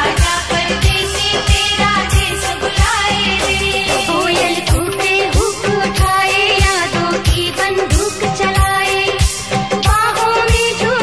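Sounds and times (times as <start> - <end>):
steady drum beat: 0.0 - 8.8
person singing wavering melody: 2.0 - 6.0.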